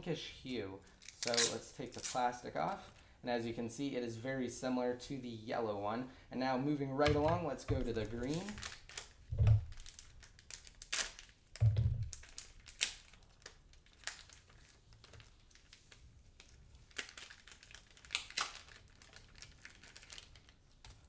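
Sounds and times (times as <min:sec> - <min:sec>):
plastic wrap crinkling: 0:00.8 - 0:03.1, 0:06.8 - 0:21.0
dull thump: 0:09.3 - 0:09.7.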